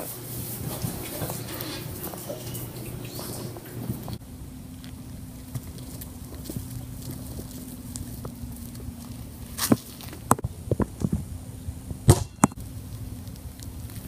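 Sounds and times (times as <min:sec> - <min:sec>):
faint low hum: 0:00.6 - 0:14.0
basketball bouncing on hard surfaces: 0:12.0 - 0:12.6.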